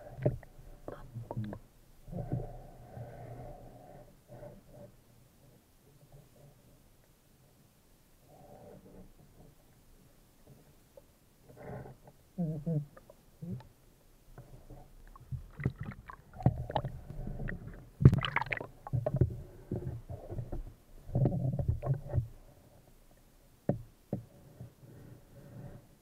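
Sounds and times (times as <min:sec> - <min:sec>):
muffled underwater sloshing: 0:14.4 - 0:22.6.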